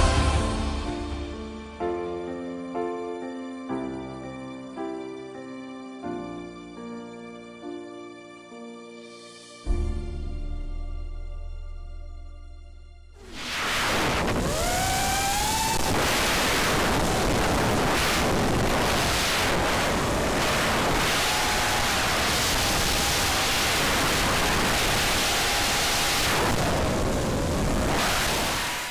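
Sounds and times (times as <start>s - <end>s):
drone motors whining: 13.2s - 28.9s
wind rush: 13.2s - 28.9s.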